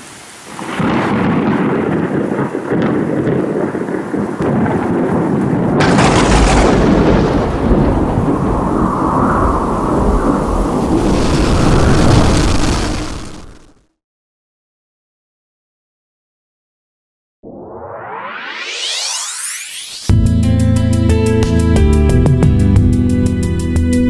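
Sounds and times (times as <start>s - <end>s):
heavy rain: 0.0s - 13.8s
thunder crack and rumble: 0.5s - 13.8s.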